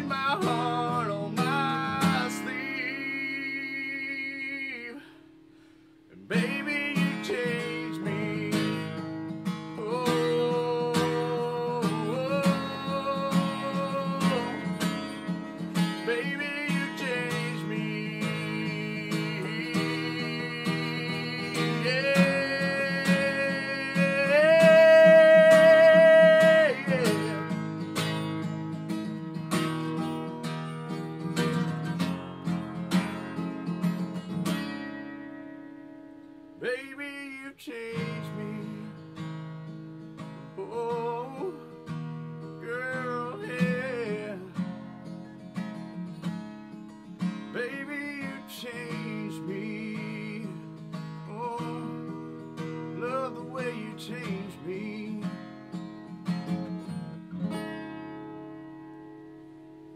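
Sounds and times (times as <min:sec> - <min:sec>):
man singing: 0:00.0 - 0:05.2, 0:06.1 - 0:28.2, 0:36.6 - 0:39.0, 0:40.5 - 0:42.0, 0:42.6 - 0:44.7, 0:47.5 - 0:55.5
strummed acoustic guitar: 0:00.0 - 0:59.9.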